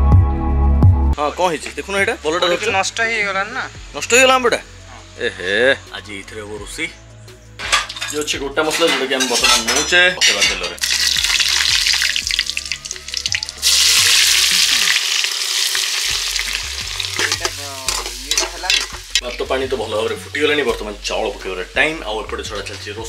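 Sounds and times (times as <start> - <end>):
hot oil sizzling in a pot: 7.6 - 22.9
metal spoon stirring a pot: 17.0 - 19.4.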